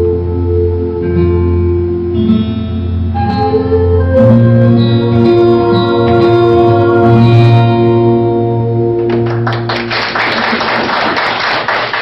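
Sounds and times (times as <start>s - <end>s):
daegeum flute notes: 3.1s - 9.0s
audience clapping: 9.0s - 12.0s.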